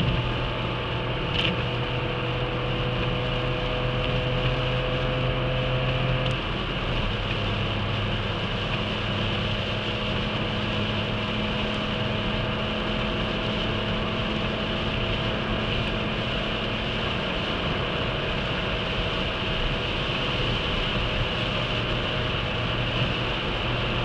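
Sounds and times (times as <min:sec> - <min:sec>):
car engine at high revs: 0:00.0 - 0:24.0
wind and road noise: 0:00.0 - 0:24.0.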